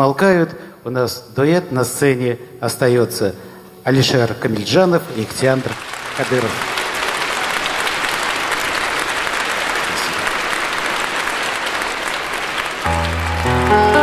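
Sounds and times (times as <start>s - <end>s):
audience applauding: 5.1s - 14.0s
instrumental chords over bass: 12.9s - 14.0s.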